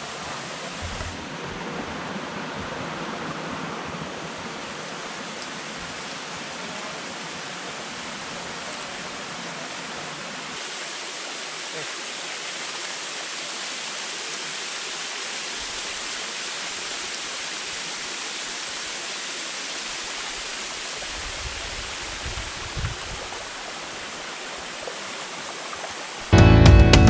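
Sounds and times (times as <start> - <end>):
flowing water rushing: 0.0 - 26.4
background music with guitar: 26.3 - 27.0.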